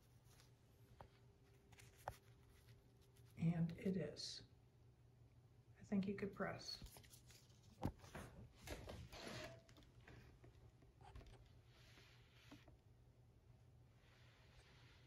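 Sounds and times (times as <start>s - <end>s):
fabric and paper rustling: 0.0s - 3.4s, 6.6s - 12.8s.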